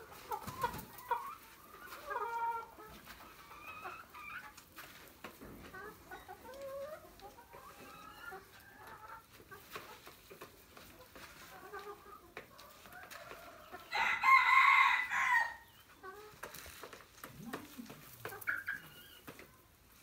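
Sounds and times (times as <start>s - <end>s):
hens clucking softly: 0.0s - 14.0s, 15.6s - 20.0s.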